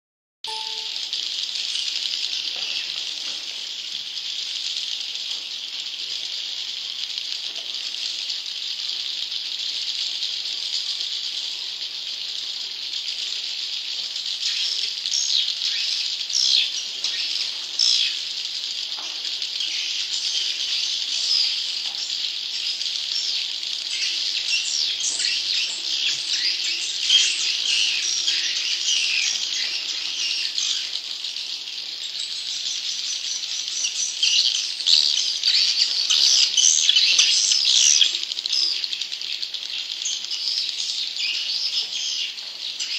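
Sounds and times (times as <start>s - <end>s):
swiftlets twittering: 0.5s - 1.2s.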